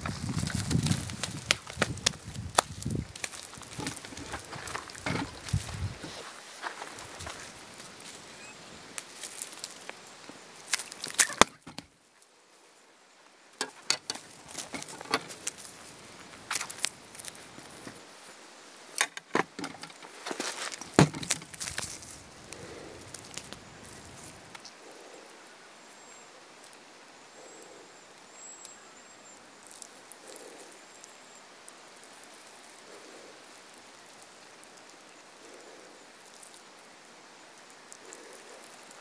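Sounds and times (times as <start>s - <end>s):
handling rustles and knocks: 0.0s - 8.2s, 10.3s - 11.9s, 13.6s - 18.1s, 19.0s - 22.2s
faint high chirps: 8.3s - 8.8s.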